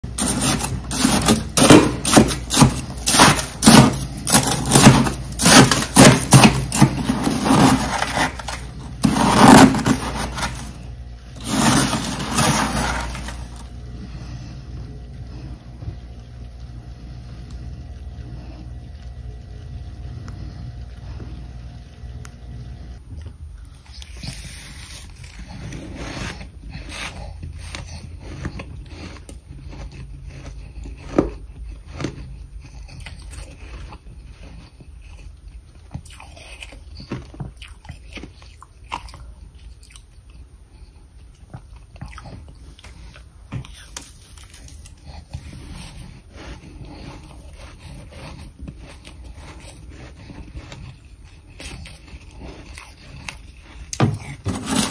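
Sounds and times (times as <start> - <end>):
spoon scraping freezer frost: 0.0 - 14.5, 23.7 - 37.4, 42.8 - 54.9
faint steady hum: 0.0 - 54.9.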